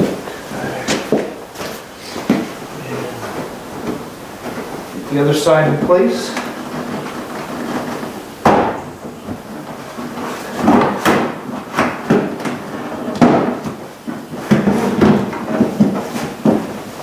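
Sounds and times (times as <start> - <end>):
plastic bumper knocking: 5.7 - 17.0.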